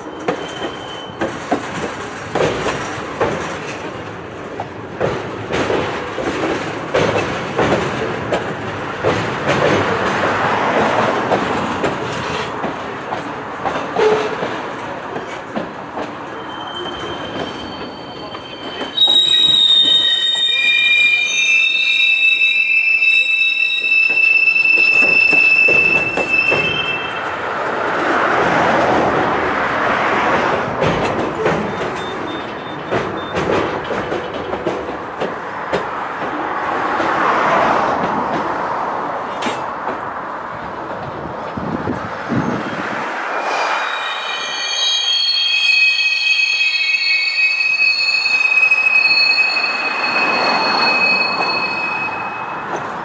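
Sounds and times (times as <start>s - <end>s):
steel wheels squealing on rails: 0.0s - 12.7s, 13.6s - 38.6s, 42.0s - 53.0s
freight cars rumbling and clattering: 0.0s - 19.0s, 23.9s - 43.4s, 49.2s - 53.0s.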